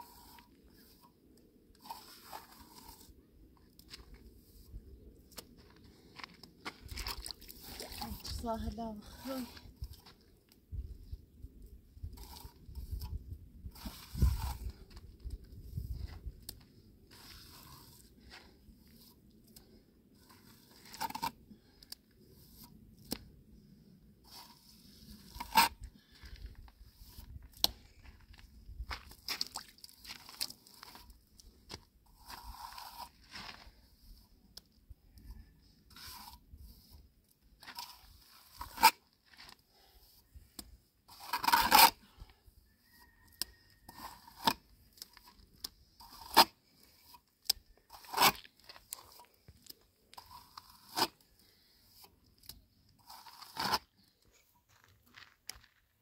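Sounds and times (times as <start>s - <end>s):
scraping and tearing handling: 43.8s - 51.4s.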